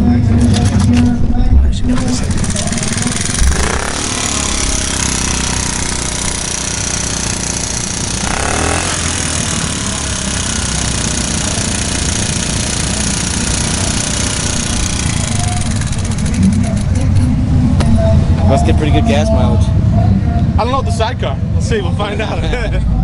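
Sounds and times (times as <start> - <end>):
small engine idling: 2.1 - 17.2.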